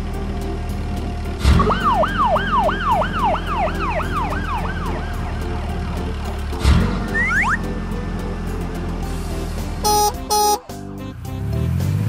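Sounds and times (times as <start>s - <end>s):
background music: 0.0s - 12.0s
police siren wailing: 1.5s - 5.8s, 7.1s - 7.7s.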